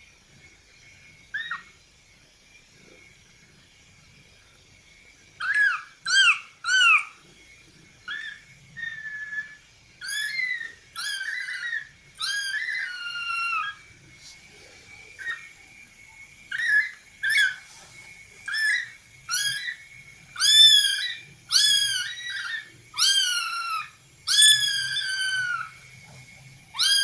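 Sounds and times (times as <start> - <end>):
kitten meowing: 20.4 - 25.7, 26.8 - 27.0.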